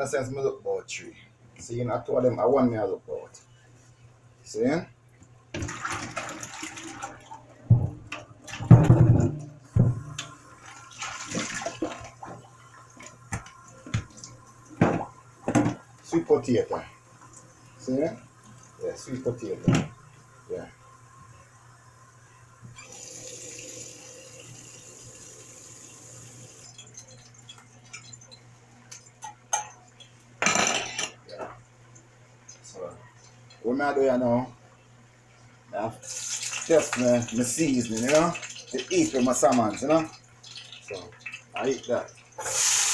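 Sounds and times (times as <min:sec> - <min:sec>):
water splashing in a tub: 0:05.6 - 0:14.7, 0:36.1 - 0:42.9
dishes clattering: 0:07.7 - 0:10.0, 0:29.2 - 0:29.8, 0:30.4 - 0:31.5
knocks in a plastic tub: 0:08.6 - 0:10.1
dishes clinking: 0:29.2 - 0:29.8, 0:30.4 - 0:31.6.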